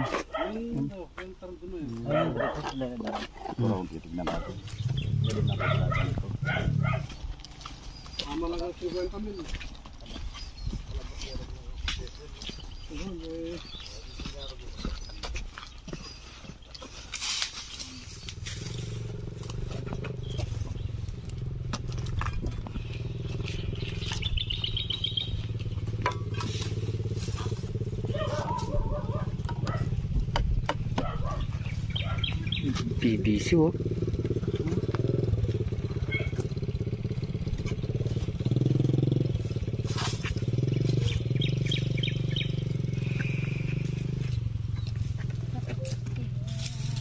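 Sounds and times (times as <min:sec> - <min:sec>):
small engine idling: 0:15.8 - 0:47.0.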